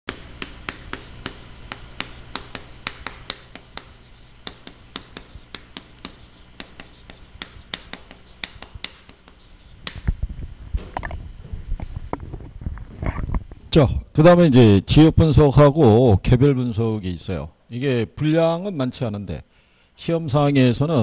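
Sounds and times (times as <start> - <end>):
chalk tapping on chalkboard: 0.1 - 10.1.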